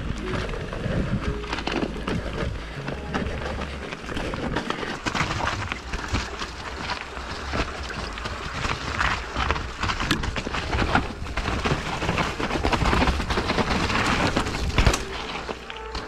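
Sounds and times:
bike clicks and rattles: 0.0 - 16.0
bike low rumble: 0.0 - 16.0.

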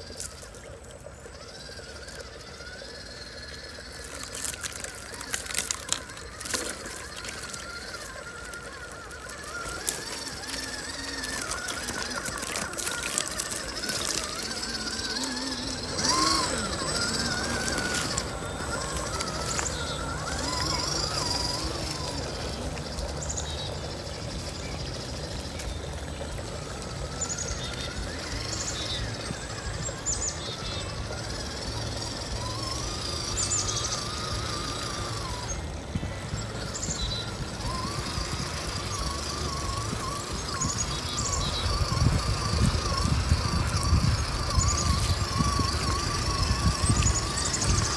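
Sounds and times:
running water: 0.0 - 47.9
toy truck motor whining: 0.0 - 47.9.

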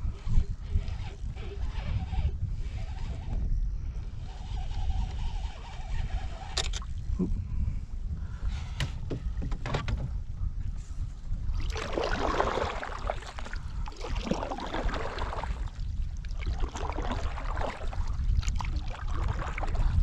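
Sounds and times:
wind buffeting microphone: 0.0 - 20.0
waves slapping against canoe hull: 11.5 - 20.0.

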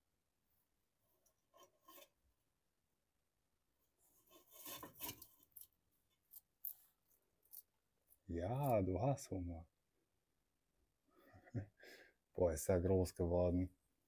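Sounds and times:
lizard claws scraping: 4.2 - 7.7.

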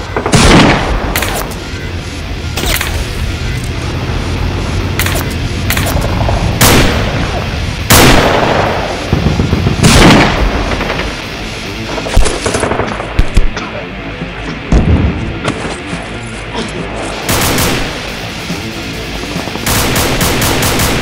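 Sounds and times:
sharp gunshots: 0.0 - 1.6, 5.0 - 11.3, 17.2 - 18.2, 19.6 - 21.0
heavy gunshots with echo: 0.1 - 1.5, 5.0 - 11.2, 17.2 - 18.2, 19.6 - 21.0.

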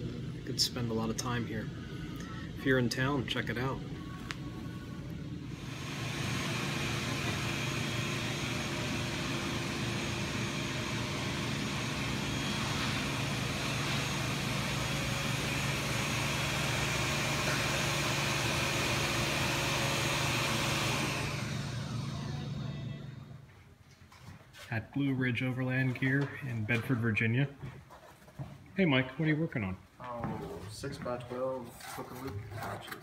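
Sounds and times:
low machine hum: 0.0 - 23.8.

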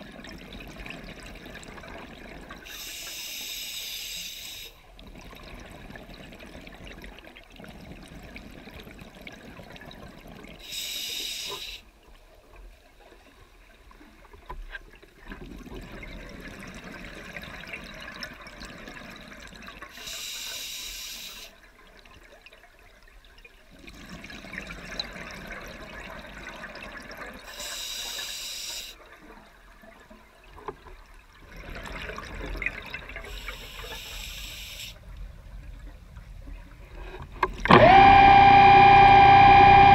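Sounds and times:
hissing regulator inhales: 2.7 - 4.8, 10.6 - 11.9, 20.0 - 21.5, 27.5 - 29.0, 33.3 - 35.0.

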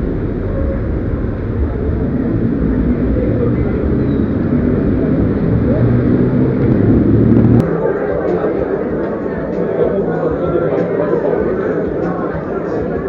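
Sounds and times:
indistinct voices: 0.0 - 13.0
loud ambient din: 0.0 - 13.0.

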